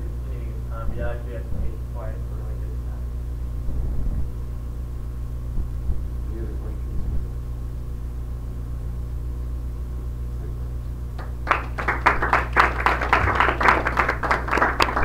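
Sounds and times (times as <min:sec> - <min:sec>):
low room hum: 0:00.0 - 0:15.0
audience clapping: 0:11.2 - 0:15.0.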